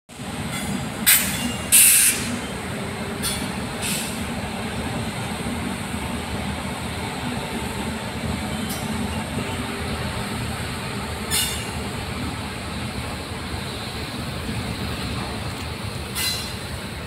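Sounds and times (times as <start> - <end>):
train wheels rumbling: 0.1 - 17.0
short sharp hisses: 3.8 - 4.2, 16.2 - 16.6.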